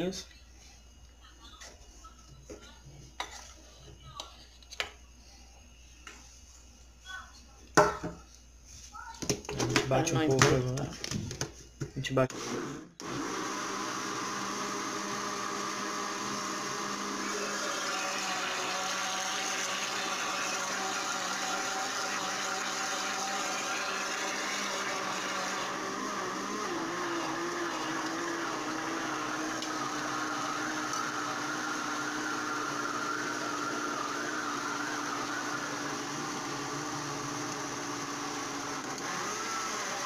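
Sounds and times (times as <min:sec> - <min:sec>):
blender motor running: 0:12.3 - 0:40.0.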